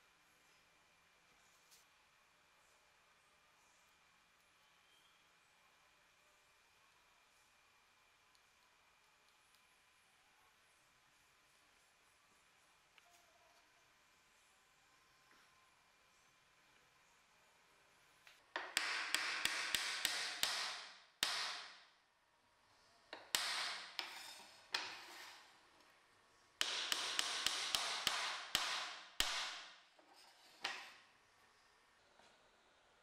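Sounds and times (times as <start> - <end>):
mallet tapping wooden pins: 18.6 - 21.8, 23.2 - 24.1, 26.6 - 29.7.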